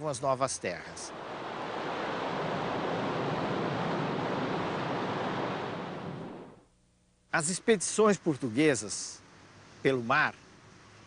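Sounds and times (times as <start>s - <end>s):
sea waves and surf: 1.1s - 6.6s.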